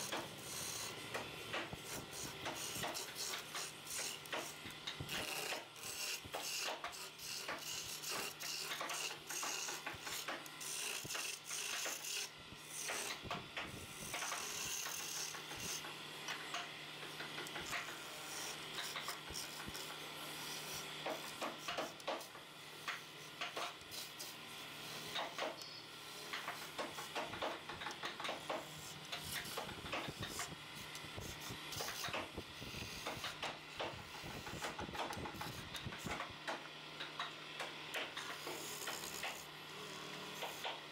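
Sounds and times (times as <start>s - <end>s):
wood lathe humming: 0.0s - 13.1s, 14.3s - 36.7s, 37.9s - 40.8s
hand tool scraping wood: 0.0s - 13.2s, 17.6s - 25.6s, 26.3s - 36.3s, 38.2s - 39.5s.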